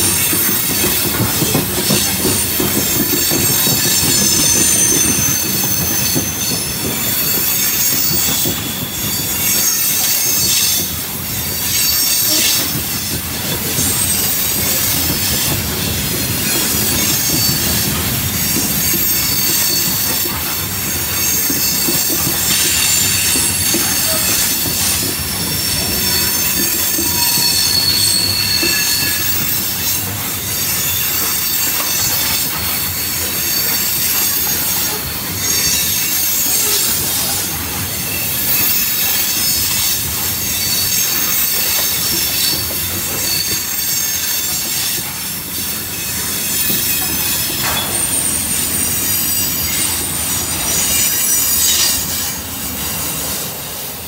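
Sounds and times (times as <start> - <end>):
freight train rolling: 0.0 - 54.0
train wheels squealing on rail: 0.0 - 54.0.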